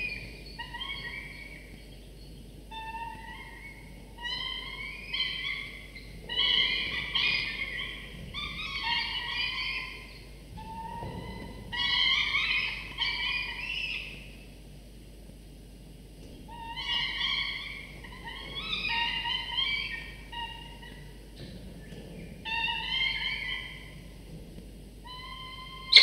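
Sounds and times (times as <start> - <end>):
falcon chicks begging calls: 25.2 - 26.0.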